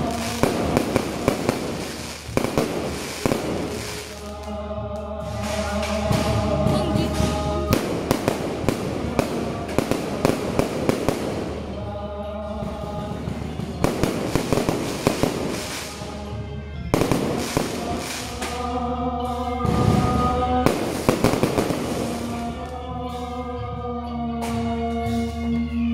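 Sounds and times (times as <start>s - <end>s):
fireworks bangs: 0.0s - 4.5s, 5.3s - 11.9s, 13.3s - 16.3s, 16.9s - 18.8s, 19.6s - 22.7s
music with held notes: 0.0s - 25.9s.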